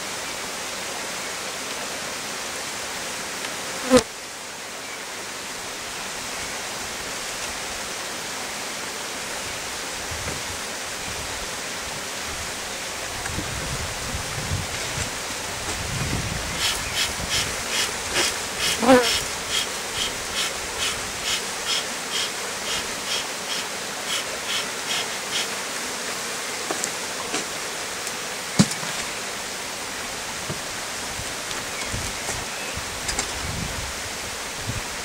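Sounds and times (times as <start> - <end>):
bellows puffing air: 15.7 - 25.6.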